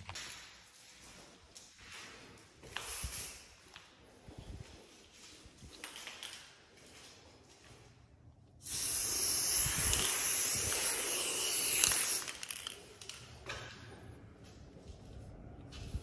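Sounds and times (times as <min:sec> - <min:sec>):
spray paint can hissing: 0:02.8 - 0:03.4, 0:08.6 - 0:12.9.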